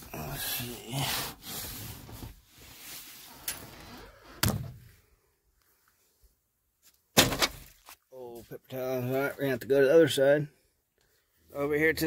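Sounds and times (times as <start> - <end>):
rustling and handling of items: 0.0 - 4.2.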